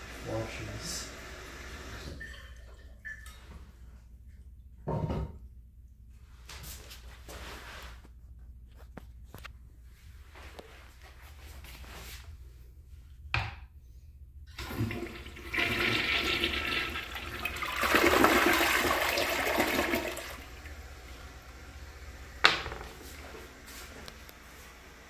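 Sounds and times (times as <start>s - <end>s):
toilet flushing: 0.0s - 3.6s, 14.5s - 25.0s
running water: 14.6s - 22.0s.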